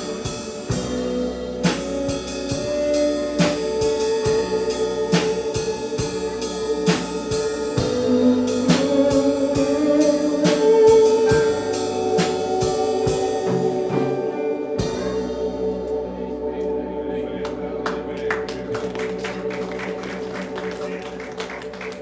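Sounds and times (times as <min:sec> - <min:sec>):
steady drum beat: 0:00.0 - 0:16.0
guitar: 0:00.0 - 0:22.0
keyboard chords: 0:00.0 - 0:22.0.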